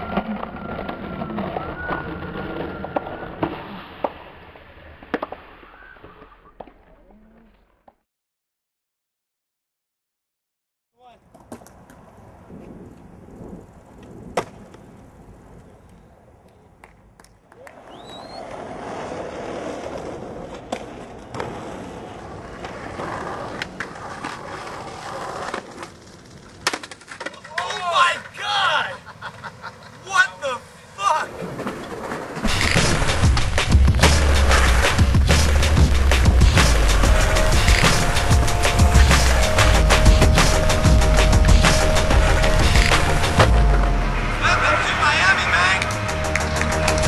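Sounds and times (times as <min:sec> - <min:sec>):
skateboard wheels rolling on pavement: 0:00.0 - 0:07.2, 0:11.2 - 0:47.0
skateboard clacking: 0:15.8 - 0:28.4, 0:31.3 - 0:47.0.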